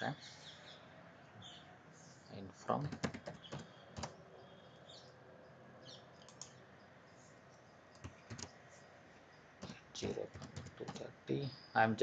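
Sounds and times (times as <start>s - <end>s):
keyboard keystrokes: 2.8s - 4.2s, 8.0s - 8.6s, 9.6s - 11.1s
mouse clicks: 6.2s - 6.6s, 8.0s - 8.6s.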